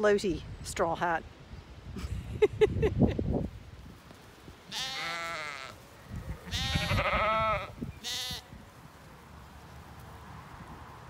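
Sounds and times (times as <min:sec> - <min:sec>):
sheep bleating: 0:04.7 - 0:08.5.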